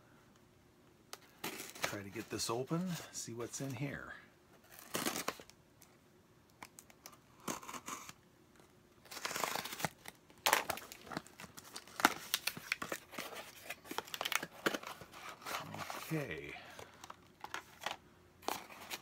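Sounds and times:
cardboard tearing: 4.7 - 5.5, 9.0 - 16.4
cardboard rustling and snapping: 9.1 - 16.2.

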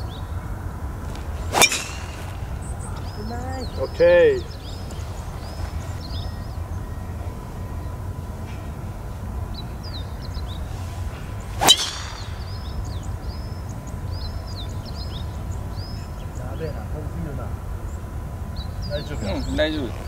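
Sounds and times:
birds chirping: 0.0 - 20.0
golf club striking ball: 1.1 - 3.2, 11.5 - 12.8.

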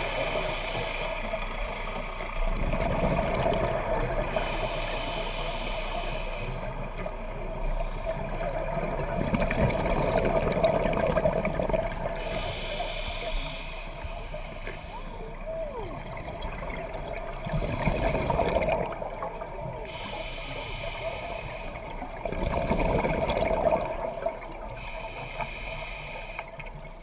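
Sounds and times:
scuba regulator breathing underwater: 0.0 - 2.4, 4.2 - 6.9, 9.7 - 16.3, 17.2 - 26.6
muffled underwater background: 0.0 - 27.0
bubbling: 8.3 - 12.2, 15.4 - 19.9, 21.8 - 24.6.

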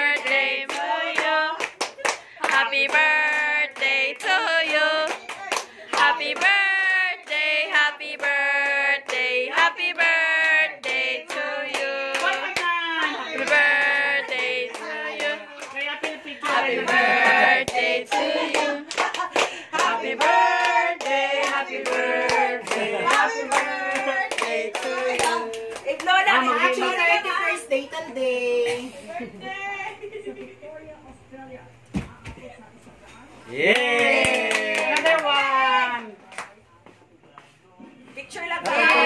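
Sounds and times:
voices singing: 0.0 - 1.7, 2.4 - 18.9, 19.7 - 27.4
rhythmic handclaps: 0.0 - 26.4, 33.8 - 36.6.

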